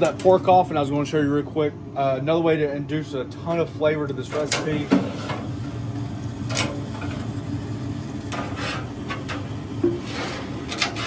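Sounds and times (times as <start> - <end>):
steady low hum: 0.0 - 11.0
metal tongs scraping on grates: 8.3 - 9.4, 10.0 - 11.0.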